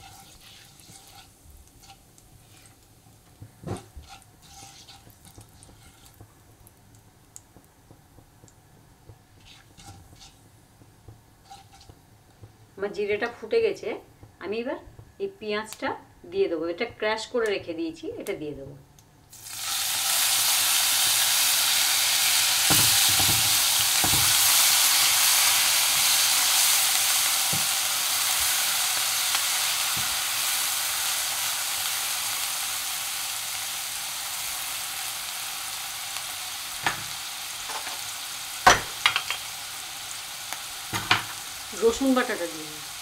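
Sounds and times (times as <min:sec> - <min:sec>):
spatula knocking and scraping: 0:00.0 - 0:06.6, 0:09.0 - 0:12.6
onion sizzling in hot oil: 0:00.0 - 0:14.6, 0:19.3 - 0:43.0.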